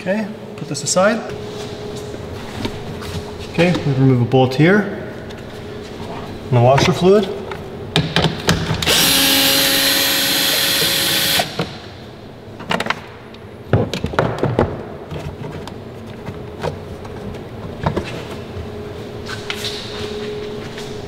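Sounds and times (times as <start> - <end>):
cordless ratchet motor whine: 8.8 - 11.7.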